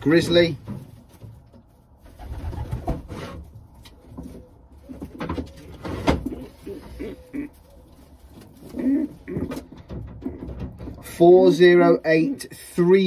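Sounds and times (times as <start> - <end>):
rustling: 0.1 - 11.0
pigeons cooing: 2.1 - 10.9.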